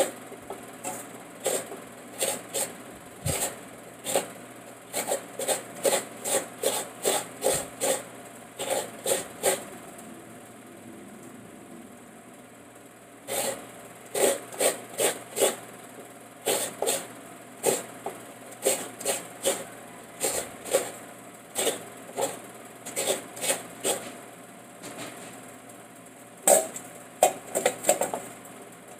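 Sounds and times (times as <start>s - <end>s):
coconut grating scrapes: 0.0s - 9.7s, 13.3s - 15.6s, 16.4s - 24.2s.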